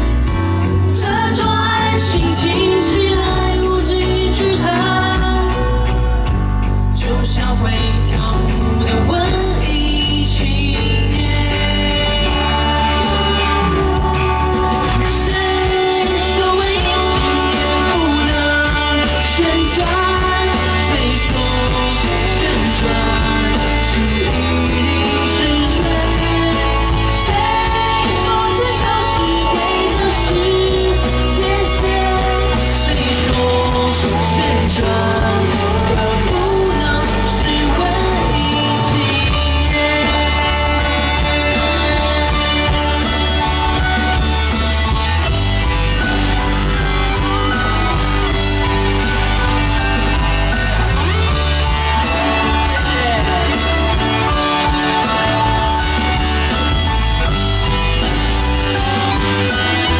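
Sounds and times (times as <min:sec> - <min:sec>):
live rock band playing: 0:00.0 - 0:59.9
woman singing into microphone: 0:00.6 - 0:05.8, 0:07.0 - 0:44.0.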